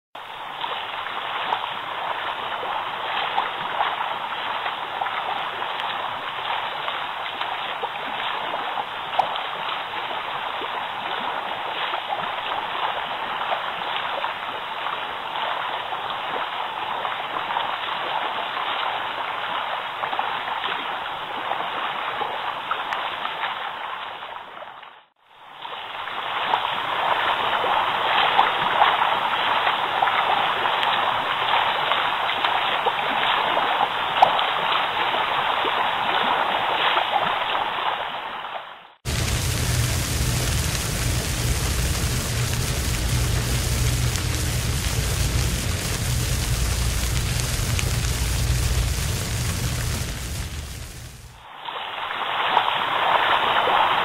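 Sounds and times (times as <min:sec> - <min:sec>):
water churning in bathtub: 0:39.1 - 0:51.2.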